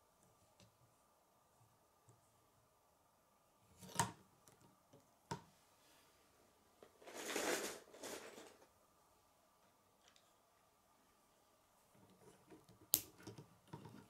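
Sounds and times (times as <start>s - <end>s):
plastic pieces rustling: 7.0s - 8.6s.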